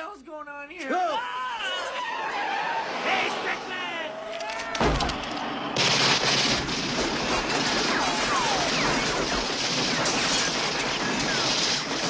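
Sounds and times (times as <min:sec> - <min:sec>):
automatic gunfire: 0:05.0 - 0:12.0.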